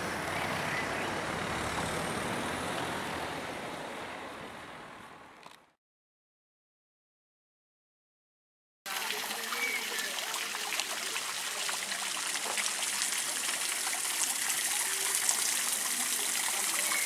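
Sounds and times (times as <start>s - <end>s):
fountain water splashing: 0.0s - 3.2s, 8.9s - 17.0s.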